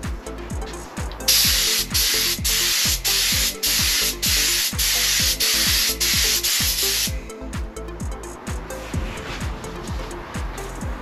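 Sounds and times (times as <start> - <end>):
paint spray gun hissing: 1.3 - 7.1.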